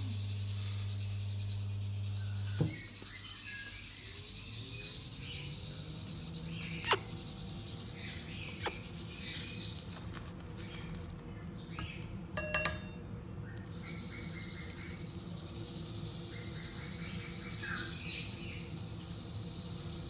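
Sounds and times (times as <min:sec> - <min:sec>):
steady low hum: 0:00.0 - 0:20.0
cockatoo chick begging chirps: 0:06.5 - 0:10.0.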